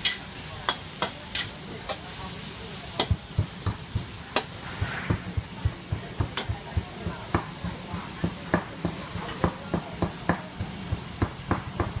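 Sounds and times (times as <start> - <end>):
food sizzling: 0.0 - 12.0
metal ladle scraping a wok: 4.4 - 5.4.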